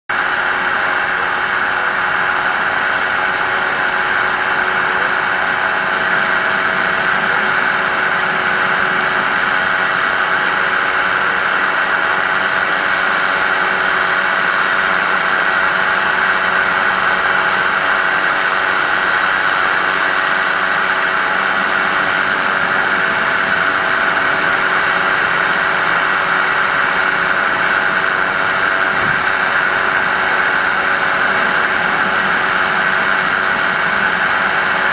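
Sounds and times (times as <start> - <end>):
light aircraft engine droning: 0.1 - 34.9.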